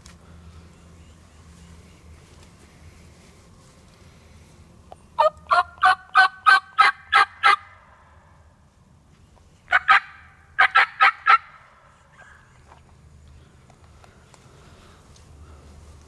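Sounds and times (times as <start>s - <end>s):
turkey yelps: 5.2s - 7.8s, 9.7s - 12.6s.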